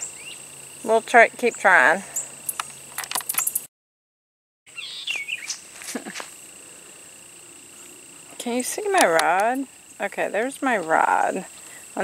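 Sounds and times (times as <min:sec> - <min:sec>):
bird chirps: 0:00.0 - 0:00.5, 0:04.7 - 0:05.7
high-pitched insect drone: 0:00.0 - 0:03.7, 0:04.7 - 0:12.0.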